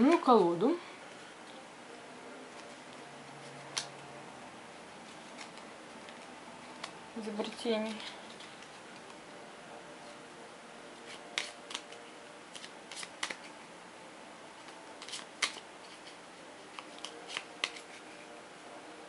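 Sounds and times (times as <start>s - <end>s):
cards being shuffled: 2.5s - 4.1s, 5.0s - 9.2s, 11.0s - 13.7s, 14.6s - 18.3s.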